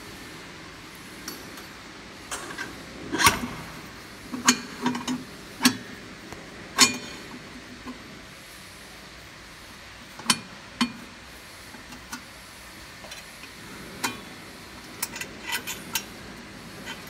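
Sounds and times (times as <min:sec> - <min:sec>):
metal parts clinking against steel: 0:15.0 - 0:16.1.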